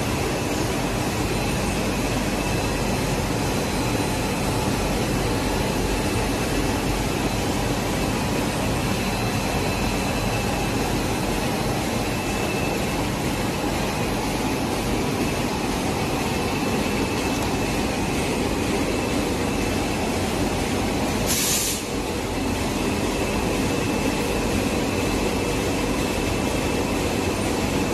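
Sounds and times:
machinery drone: 0.0 - 27.9
brief hiss: 21.3 - 21.9.

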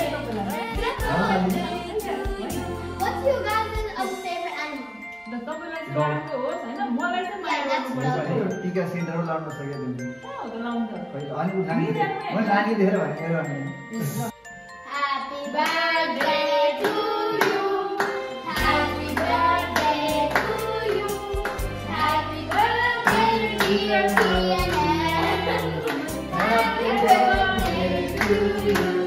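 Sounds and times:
people singing over backing music: 0.0 - 3.2, 15.6 - 29.0
hands clapping along: 15.6 - 29.0.

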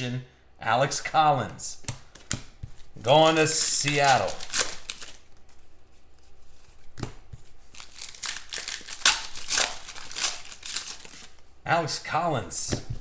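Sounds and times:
crinkling card wrapper: 3.0 - 5.6, 7.6 - 11.5.

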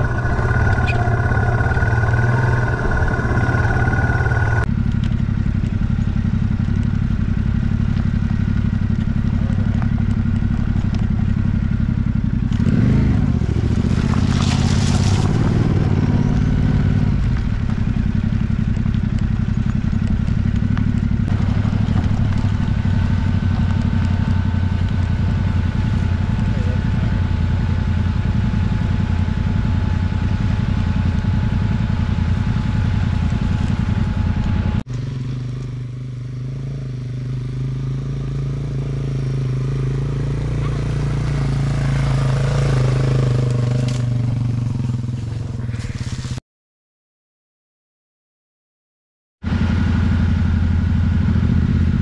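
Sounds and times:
tyres on wet gravel: 0.0 - 27.9, 40.4 - 46.4
motorcycle engine running: 0.0 - 46.4, 49.4 - 52.0.

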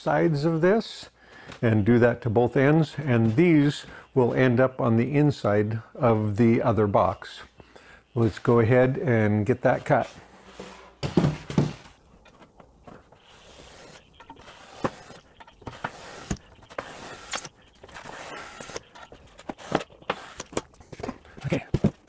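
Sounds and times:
foam box knocked on workbench: 11.0 - 11.9.

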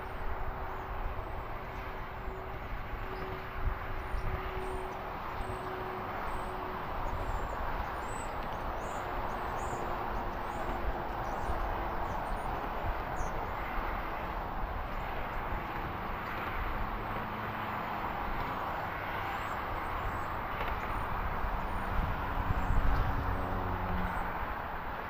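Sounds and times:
steady rushing background noise: 0.0 - 25.0.

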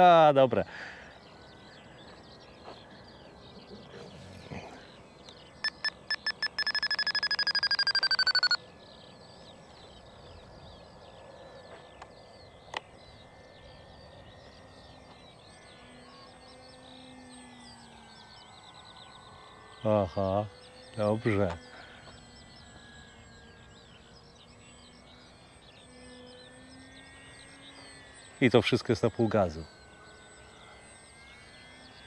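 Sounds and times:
radio transmitter beeping: 5.6 - 8.6.

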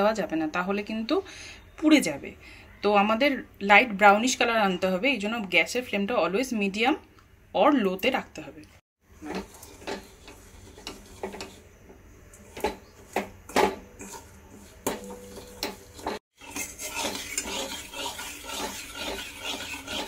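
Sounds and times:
metal spatula scraping a pan: 9.2 - 20.0.

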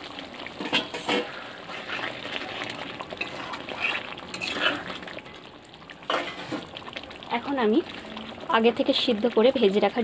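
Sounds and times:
curry bubbling: 0.0 - 10.0
spatula stirring curry in wok: 0.6 - 5.0.

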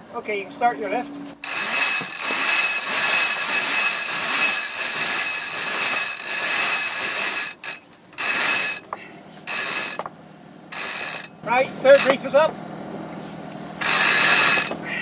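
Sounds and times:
winch ratcheting buzz: 1.4 - 10.1, 10.7 - 12.4, 13.8 - 14.9.

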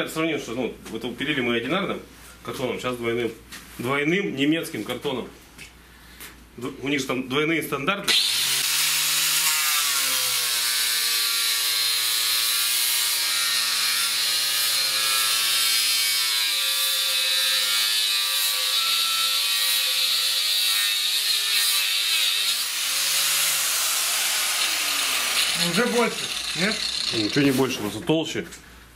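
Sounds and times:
angle grinder cutting wood: 8.1 - 28.0.

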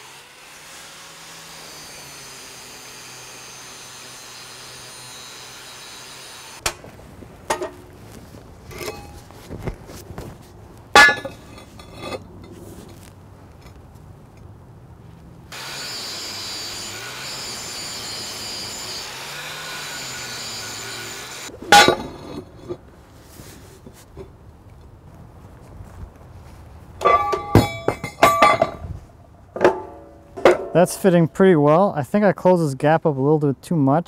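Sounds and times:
angle grinder grinding steel: 0.0 - 6.6, 15.5 - 22.8
loud metal clanks: 10.9 - 12.6, 21.7 - 22.5, 27.0 - 28.9, 29.6 - 31.0.

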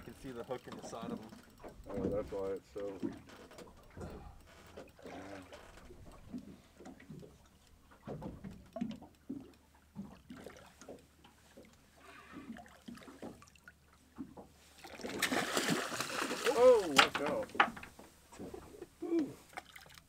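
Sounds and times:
water sloshing against boat hull: 0.0 - 20.0.

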